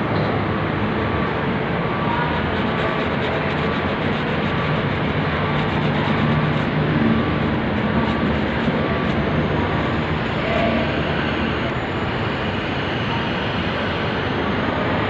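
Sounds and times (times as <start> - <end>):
rotary tool grinding steel: 2.2 - 11.6.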